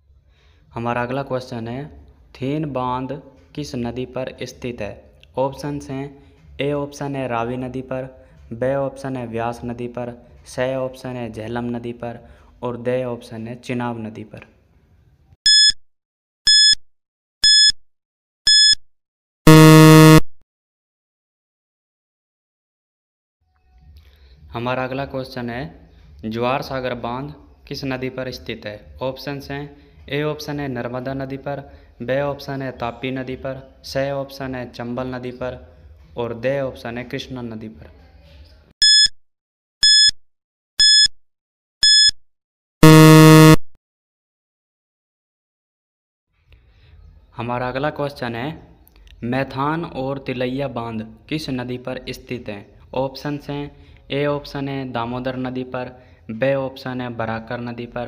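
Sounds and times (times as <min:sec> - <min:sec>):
low buzzer tone: 0:15.5 - 0:15.8, 0:16.5 - 0:16.8, 0:17.4 - 0:17.8, 0:18.5 - 0:18.8, 0:19.5 - 0:20.4, 0:38.8 - 0:39.1, 0:39.8 - 0:40.2, 0:40.8 - 0:41.1, 0:41.8 - 0:42.2, 0:42.8 - 0:43.8
short high electronic beeps: 0:15.5 - 0:15.8, 0:16.5 - 0:16.8, 0:17.4 - 0:17.8, 0:18.5 - 0:18.8, 0:19.5 - 0:20.3, 0:38.8 - 0:39.2, 0:39.8 - 0:40.2, 0:40.8 - 0:41.2, 0:41.8 - 0:42.2, 0:42.8 - 0:43.8.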